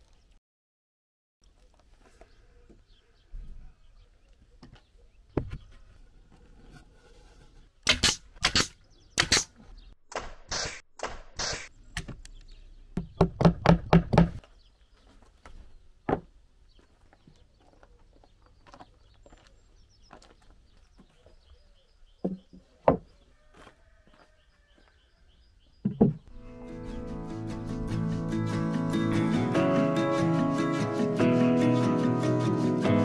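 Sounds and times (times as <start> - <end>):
pneumatic nail gun shots: 7.9 - 11.7.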